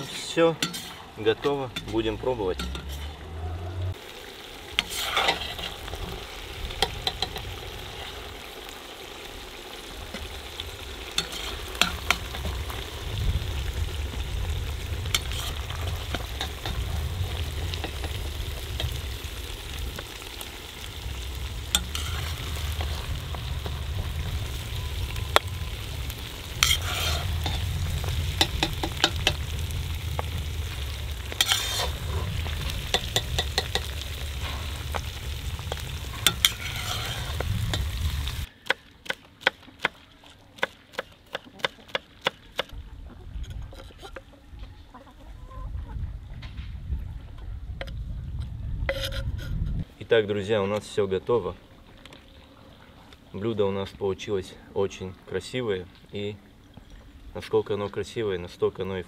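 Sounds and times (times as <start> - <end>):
metal ladle scraping iron pot: 0.0 - 3.2, 4.8 - 5.8, 11.2 - 12.3, 15.1 - 16.8, 21.7 - 22.4, 26.6 - 27.6, 31.3 - 33.9, 36.2 - 37.8, 48.9 - 49.6
steady low rumble: 12.0 - 38.5.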